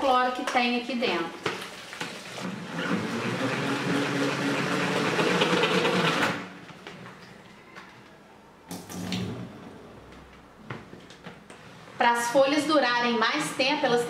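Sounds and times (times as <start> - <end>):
salad spinner whirring: 2.5 - 6.4.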